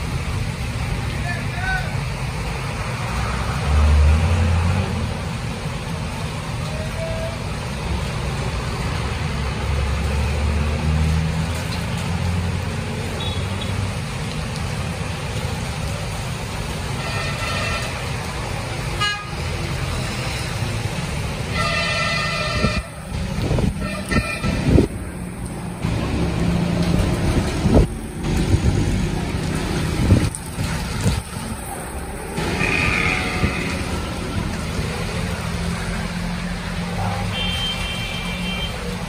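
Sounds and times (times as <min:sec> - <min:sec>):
engines rumbling: 0:00.0 - 0:39.0
rain hiss: 0:00.0 - 0:39.0
tyres on wet road: 0:00.0 - 0:39.0
vehicle horns honking: 0:13.2 - 0:13.7, 0:17.0 - 0:17.9, 0:21.5 - 0:22.9, 0:23.8 - 0:24.8, 0:37.3 - 0:38.9.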